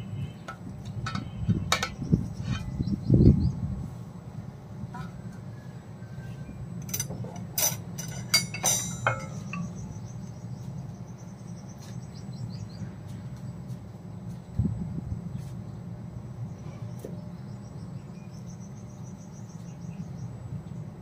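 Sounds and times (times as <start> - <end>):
steady low hum: 0.0 - 21.0
metal skewer clinking on steel tray: 6.8 - 9.7.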